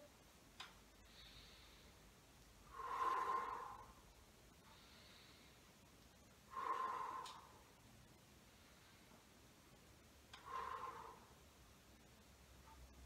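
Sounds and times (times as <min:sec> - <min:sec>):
faint breaths: 0:00.9 - 0:13.0
man breathing out: 0:01.0 - 0:04.0, 0:06.5 - 0:07.7, 0:10.4 - 0:11.4.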